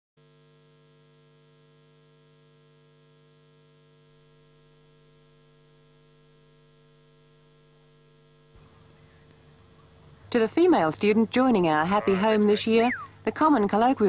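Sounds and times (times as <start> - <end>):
faint electrical hum: 0.2 - 14.0
light hiss: 8.5 - 10.8.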